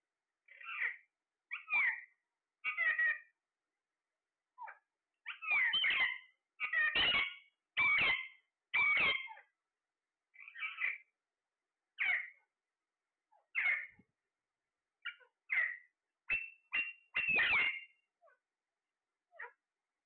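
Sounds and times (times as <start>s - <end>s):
parakeets calling: 0.5s - 3.3s, 4.6s - 9.5s, 10.4s - 11.1s, 12.0s - 12.4s, 13.3s - 14.0s, 15.0s - 18.0s.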